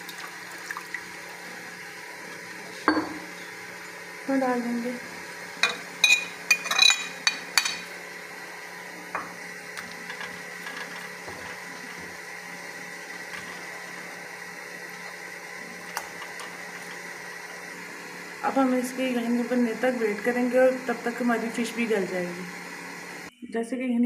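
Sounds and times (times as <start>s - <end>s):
steel spoon clinking on plate: 5.6s - 7.8s.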